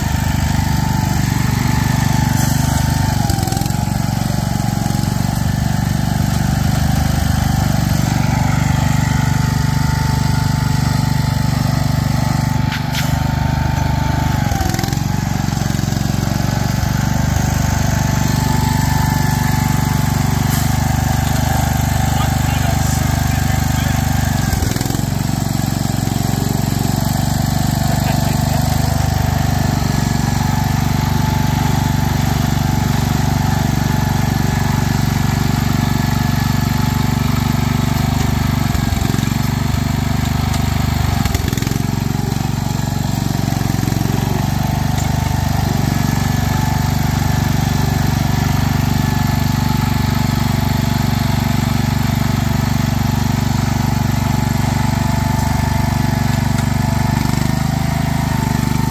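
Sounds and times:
garden tractor engine under load: 0.0s - 58.9s.

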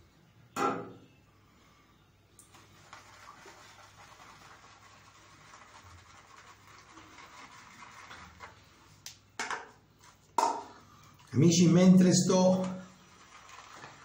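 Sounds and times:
shaving brush swishing lather: 2.5s - 8.8s, 12.3s - 14.0s.

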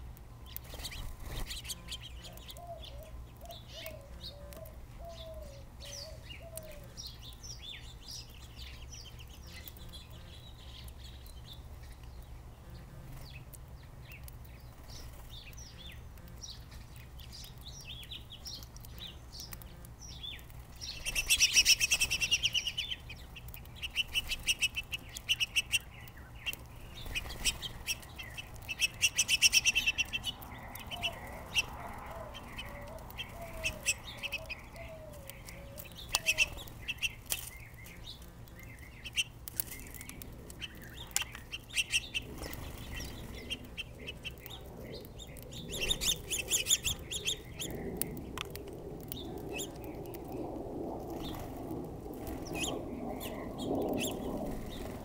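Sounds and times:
wing flutter: 0.5s - 2.0s, 19.5s - 55.0s
finches chirping: 14.1s - 48.4s, 52.2s - 55.0s.

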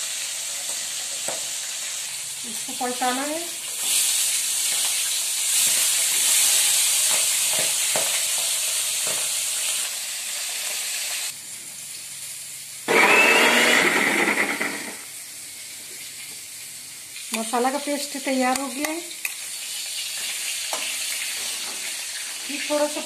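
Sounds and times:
fish sizzling in hot oil: 0.0s - 12.9s, 15.0s - 23.0s
mixer grinder running: 12.9s - 15.1s.

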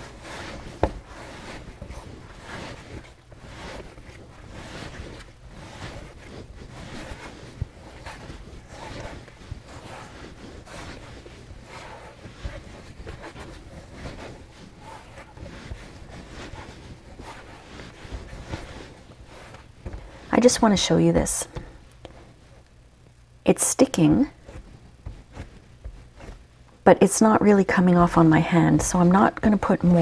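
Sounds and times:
dough being kneaded: 0.0s - 30.0s.

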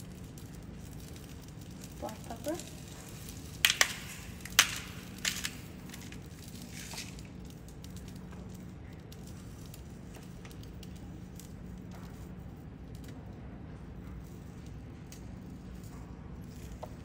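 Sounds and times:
egg crackling in waffle maker: 0.0s - 12.4s
pepper grinder crunching: 1.2s - 7.5s.

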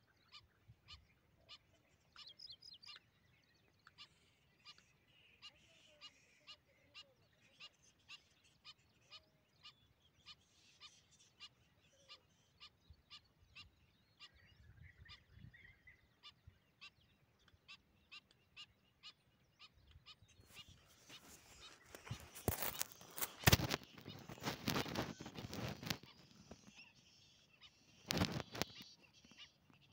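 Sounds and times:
bird calling faintly: 0.0s - 29.9s
phone handling rustle: 21.1s - 24.6s.

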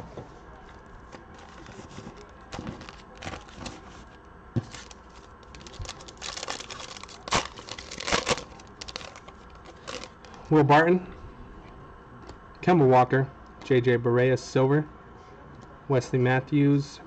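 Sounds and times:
foil wrapper crinkling and tearing: 1.0s - 10.4s.

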